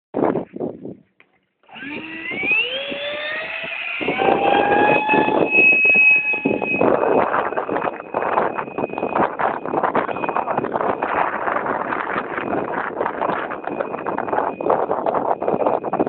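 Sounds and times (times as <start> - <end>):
wind noise on microphone: 0.2 - 16.0
electric fan motor whine: 1.6 - 16.0.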